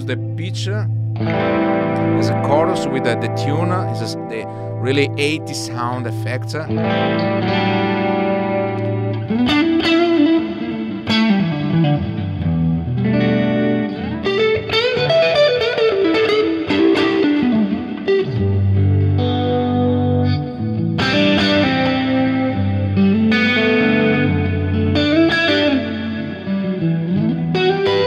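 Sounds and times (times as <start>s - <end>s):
electric guitar with chorus shimmer: 0.0s - 28.0s.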